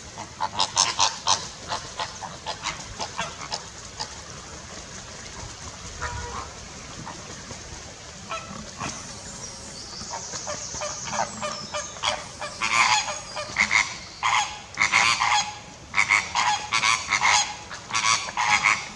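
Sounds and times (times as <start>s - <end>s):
flamingos honking: 6.0s - 7.4s, 8.0s - 18.9s.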